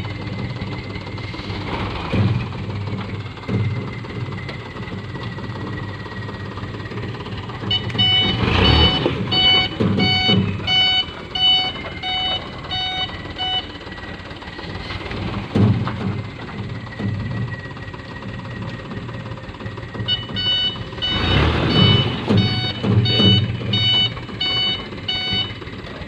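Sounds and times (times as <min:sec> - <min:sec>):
truck engine revving: 0:00.0 - 0:26.0
reversing alarm beeping: 0:06.2 - 0:14.8, 0:19.9 - 0:25.8.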